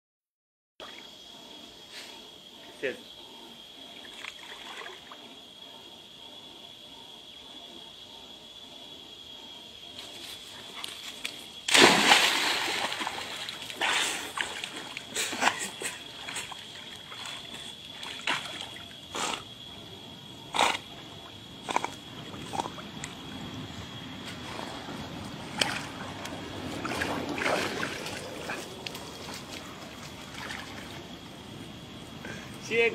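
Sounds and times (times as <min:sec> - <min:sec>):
swimming splashes and sloshing: 0:04.0 - 0:05.2, 0:11.1 - 0:19.0, 0:24.4 - 0:31.5
big splash into water: 0:11.7 - 0:14.8.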